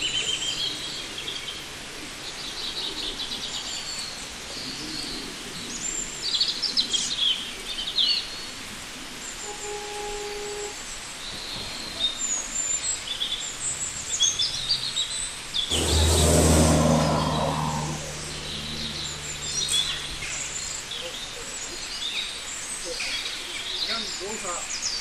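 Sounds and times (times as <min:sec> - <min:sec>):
loud rushing noise: 0:15.7 - 0:21.1
low motor hum: 0:15.7 - 0:21.8.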